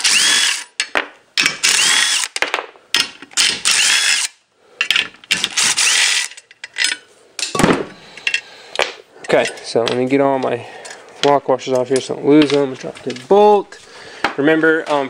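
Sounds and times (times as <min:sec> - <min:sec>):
impact driver whining: 0:00.0 - 0:00.7, 0:01.4 - 0:02.4, 0:05.3 - 0:06.3.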